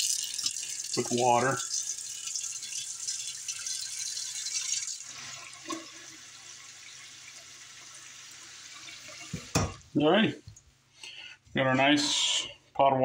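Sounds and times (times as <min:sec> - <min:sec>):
tap water filling metal pot: 0:00.0 - 0:09.9.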